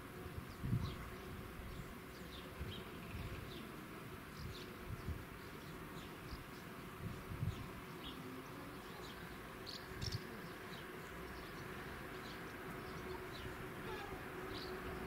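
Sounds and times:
faint steady buzz: 0:00.0 - 0:15.0
bird chirps: 0:08.8 - 0:14.8.

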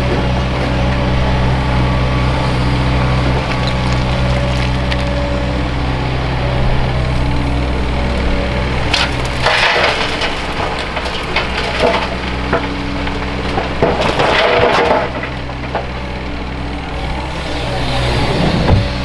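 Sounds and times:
diesel engine running: 0:00.0 - 0:19.0
rocks crashing into truck body: 0:08.9 - 0:16.1.

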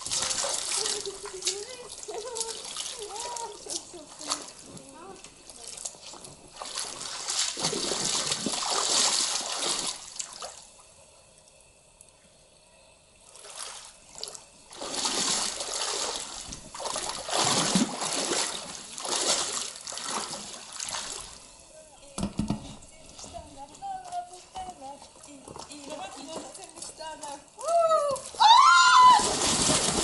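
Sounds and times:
paddle splashing in water: 0:05.7 - 0:10.6, 0:13.4 - 0:21.4, 0:28.2 - 0:30.0.

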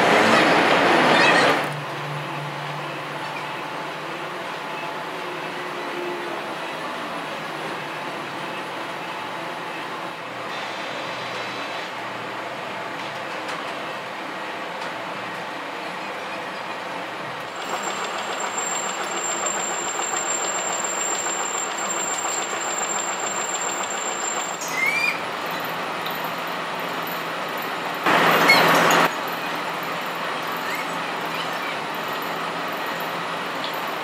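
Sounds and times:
machinery clattering: 0:17.5 - 0:24.6
loud burst of noise: 0:28.0 - 0:29.1.

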